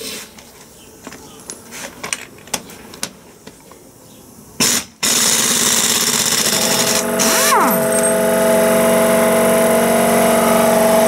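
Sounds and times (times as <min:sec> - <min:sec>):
pneumatic impact wrench hammering: 0:04.6 - 0:09.0.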